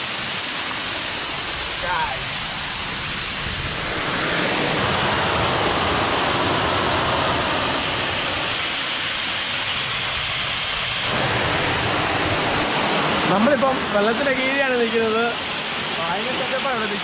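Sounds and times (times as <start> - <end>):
waterfall pouring onto rock: 0.0 - 3.4, 12.6 - 17.0.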